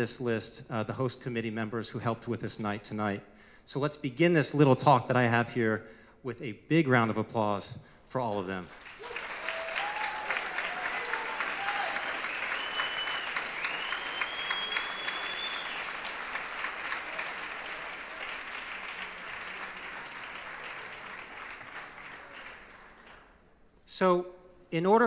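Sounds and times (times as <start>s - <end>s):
audience applauding: 8.7s - 23.3s.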